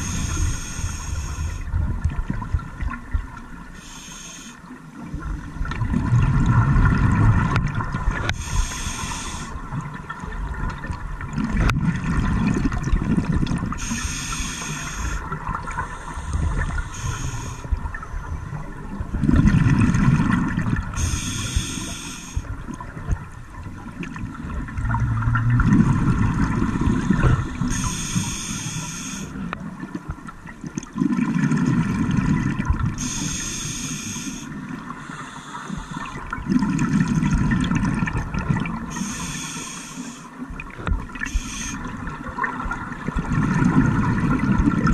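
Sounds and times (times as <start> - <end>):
regulator inhale hiss: 0.0 - 1.7, 3.8 - 4.7, 8.3 - 9.6, 13.8 - 18.4, 21.0 - 22.5, 26.7 - 29.4, 33.0 - 36.3, 38.9 - 40.4, 41.2 - 41.9
exhaled bubbles rumbling: 0.0 - 3.8, 4.9 - 28.1, 29.4 - 33.1, 35.8 - 39.1, 40.4 - 44.9.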